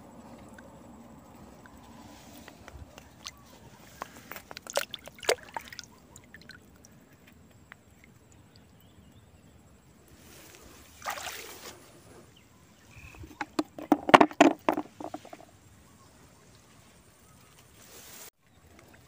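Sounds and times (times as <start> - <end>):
trickling water: 2.6 - 12.0
hand splashing in water: 4.0 - 6.5, 11.0 - 11.7.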